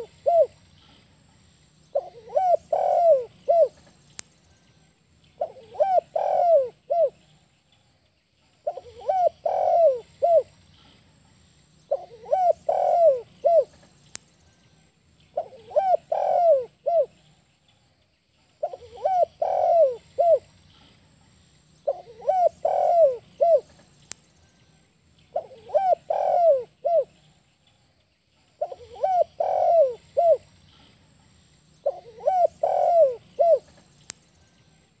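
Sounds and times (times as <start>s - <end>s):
dove cooing: 0.0s - 0.6s, 1.9s - 3.9s, 5.4s - 7.2s, 8.6s - 10.6s, 11.9s - 13.8s, 15.4s - 17.2s, 18.6s - 20.5s, 21.8s - 23.8s, 25.3s - 27.3s, 28.6s - 30.9s, 31.8s - 33.8s.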